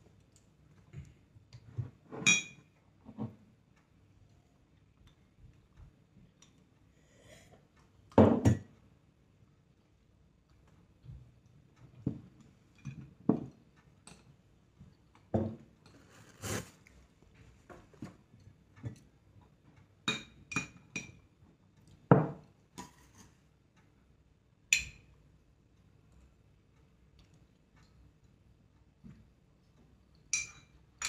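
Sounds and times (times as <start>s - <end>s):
utensils clinking on soup bowl: 2.2s - 2.7s, 30.3s - 30.8s.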